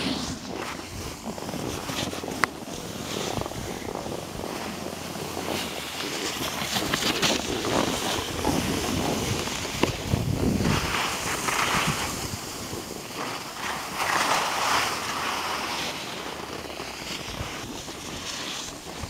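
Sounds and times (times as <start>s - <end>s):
wind buffeting microphone: 0.0s - 13.6s
skis scraping over snow: 0.0s - 19.0s.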